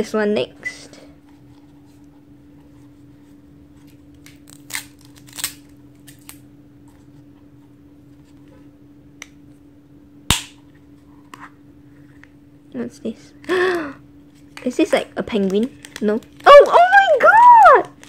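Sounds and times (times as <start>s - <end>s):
faint steady hum: 0.0s - 18.0s
plastic capsule snapping apart: 4.2s - 6.4s, 10.3s - 10.6s.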